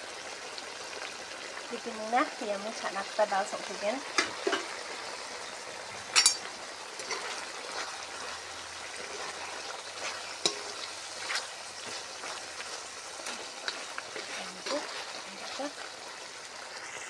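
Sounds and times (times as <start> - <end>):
food sizzling and bubbling: 0.0 - 17.0
spatula clanking against pot: 6.2 - 6.5, 10.4 - 10.8
spatula stirring in pot: 6.2 - 16.8.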